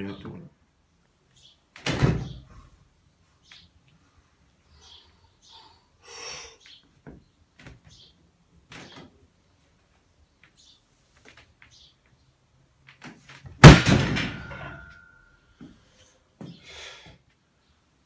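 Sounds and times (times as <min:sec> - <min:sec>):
short breaths: 0:04.8 - 0:06.7, 0:15.6 - 0:17.3.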